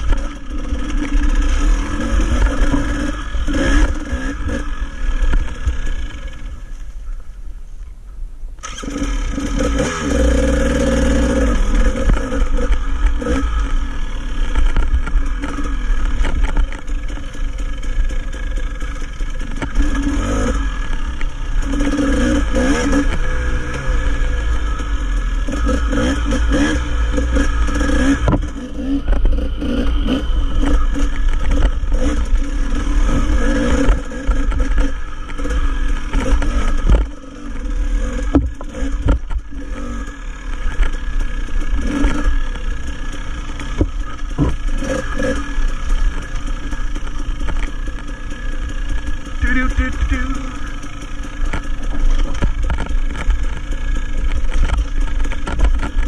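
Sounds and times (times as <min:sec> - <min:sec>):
dirt bike engine revving: 0:00.0 - 0:06.9, 0:08.6 - 0:56.0
bike rattling over rocky ground: 0:11.0 - 0:22.0, 0:50.6 - 0:56.0.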